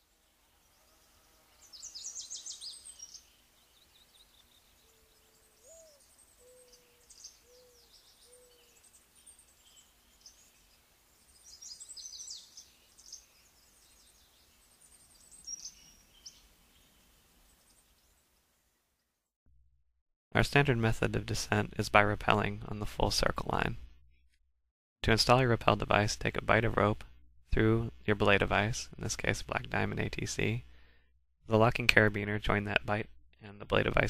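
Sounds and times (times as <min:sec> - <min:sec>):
songbirds chirping trills: 0:00.0 - 0:19.1
low cooing call: 0:04.8 - 0:08.8.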